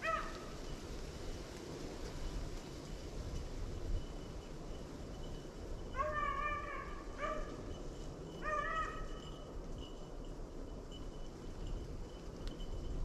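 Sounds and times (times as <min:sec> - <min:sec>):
dog baying and yelping: 0:06.0 - 0:07.6.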